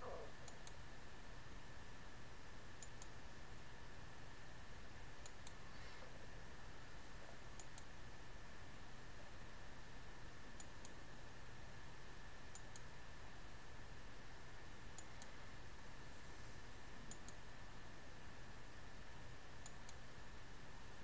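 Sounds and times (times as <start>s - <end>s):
faint steady hiss: 0.0s - 21.0s
computer mouse clicks: 0.4s - 0.8s, 2.8s - 3.2s, 5.2s - 5.6s, 7.6s - 7.9s, 10.6s - 11.0s, 12.5s - 12.9s, 14.9s - 15.4s, 17.0s - 17.4s, 19.6s - 20.0s.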